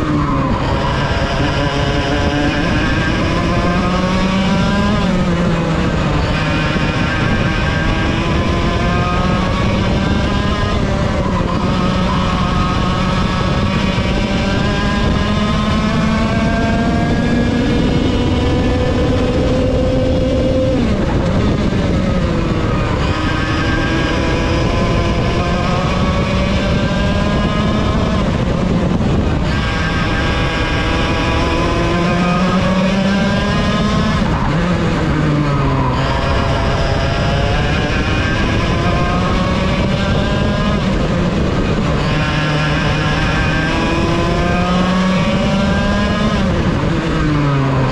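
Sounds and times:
kart engine at racing speed: 0:00.0 - 0:47.9.

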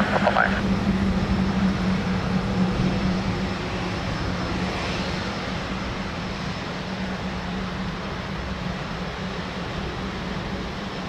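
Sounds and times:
turboprop aircraft drone: 0:00.0 - 0:11.0.

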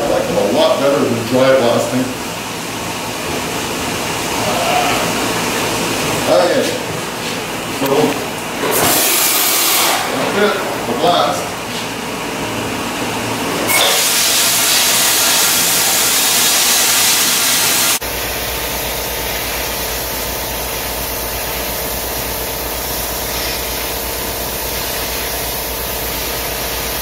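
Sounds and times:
blaster nozzle spray hiss: 0:08.7 - 0:10.1, 0:13.7 - 0:27.0.

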